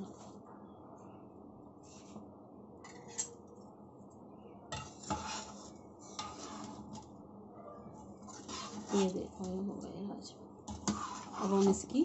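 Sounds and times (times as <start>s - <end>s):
metal spoon stirring curry: 4.7s - 7.1s, 7.9s - 9.8s, 10.6s - 12.0s.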